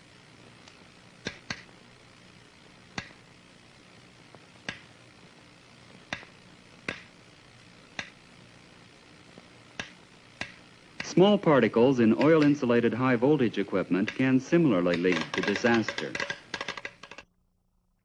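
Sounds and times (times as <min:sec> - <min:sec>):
faint steady hum and hiss: 0:00.0 - 0:18.0
electrical sparks snapping: 0:00.6 - 0:05.1, 0:05.8 - 0:11.3, 0:13.8 - 0:17.2.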